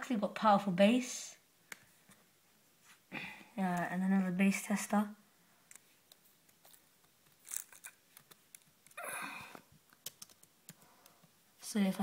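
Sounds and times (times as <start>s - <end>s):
keyboard and trackpad clicks: 9.9s - 11.3s.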